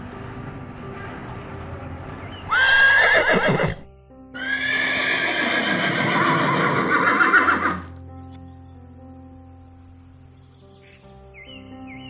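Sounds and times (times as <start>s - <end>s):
background music: 0.0s - 12.0s
horse whinnying: 2.5s - 8.0s.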